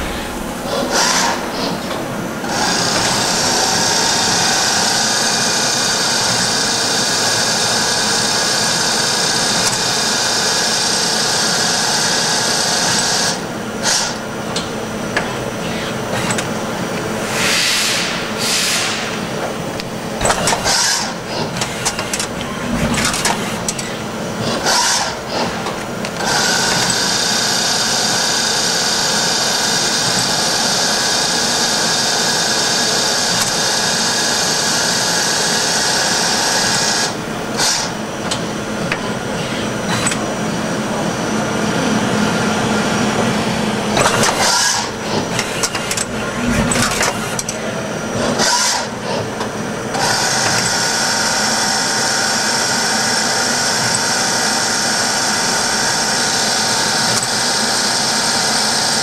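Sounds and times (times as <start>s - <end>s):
lathe whirring hiss: 0.0s - 59.0s
sharp machining bursts: 20.2s - 25.6s, 44.0s - 47.5s, 48.1s - 49.1s.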